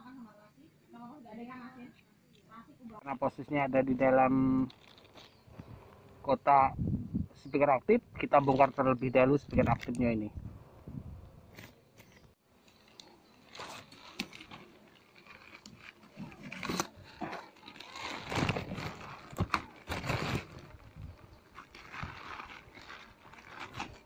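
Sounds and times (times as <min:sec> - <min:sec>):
crunching and crinkling handling noise: 0:03.3 - 0:06.3, 0:08.2 - 0:10.3, 0:11.5 - 0:24.0.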